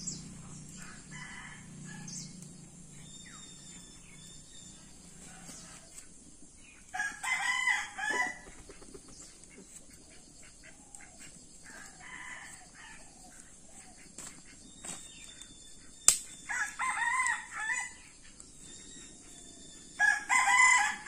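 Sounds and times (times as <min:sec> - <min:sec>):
rooster crowing: 0:00.7 - 0:02.3, 0:06.9 - 0:08.5, 0:11.7 - 0:13.0, 0:16.4 - 0:18.0, 0:18.7 - 0:21.0.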